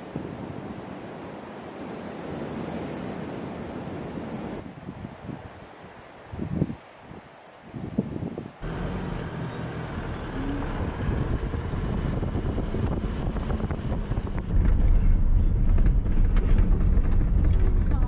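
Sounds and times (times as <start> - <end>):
vehicle engine and tyres rumbling: 8.6 - 18.0.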